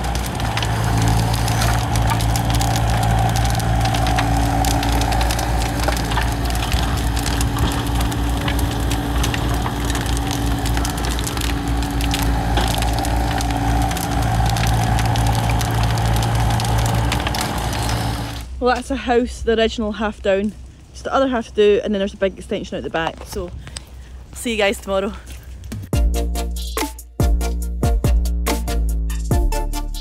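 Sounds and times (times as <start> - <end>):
wood cracking and splintering: 0.0 - 18.9
diesel excavator engine: 0.0 - 23.4
rubble crashing: 0.0 - 25.4.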